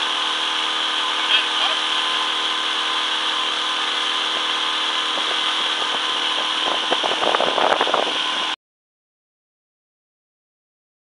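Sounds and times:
outboard motor humming: 0:00.0 - 0:08.6
rush of wind and water: 0:04.3 - 0:08.6.

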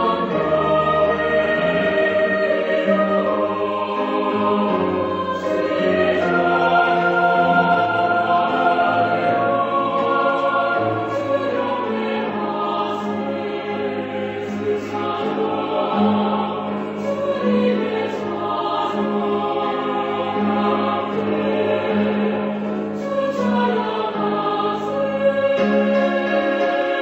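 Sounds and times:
mixed choir singing in harmony: 0:00.0 - 0:27.0.

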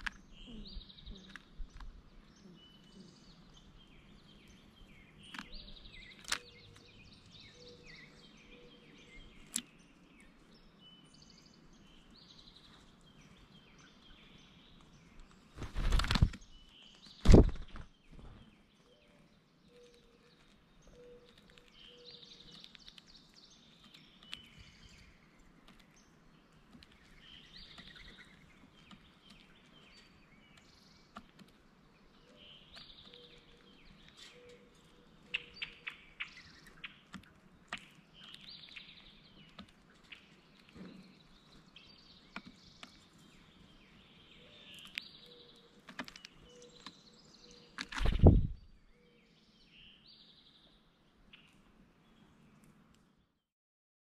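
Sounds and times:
birds singing: 0:00.0 - 0:53.4
wing flutter thump: 0:15.6 - 0:16.4, 0:17.2 - 0:18.4, 0:47.9 - 0:48.6
woodpecker tapping: 0:20.9 - 0:31.6, 0:41.6 - 0:43.2.

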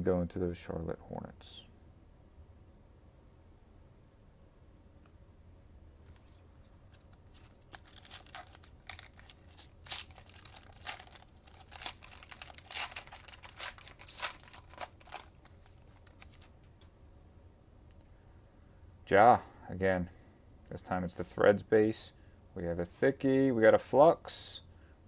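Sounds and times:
foil pack tearing and crinkling: 0:06.9 - 0:16.6.

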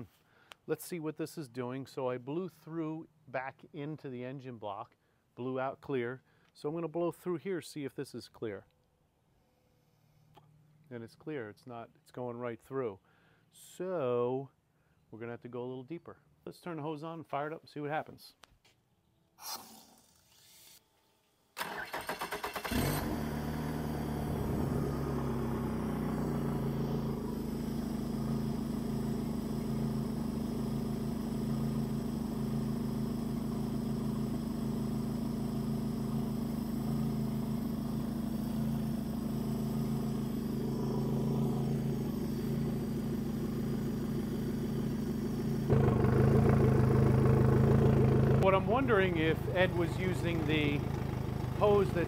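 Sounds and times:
outboard motor cranking and idling: 0:21.6 - 0:52.0.

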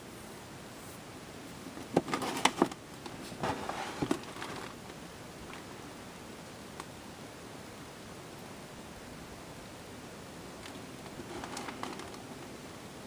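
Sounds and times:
steady hiss: 0:00.0 - 0:13.0
handling clicks and rustling: 0:01.6 - 0:05.7, 0:10.6 - 0:12.6.

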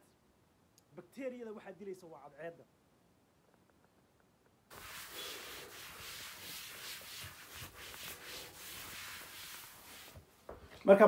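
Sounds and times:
cloth wiping countertop: 0:04.7 - 0:10.6.

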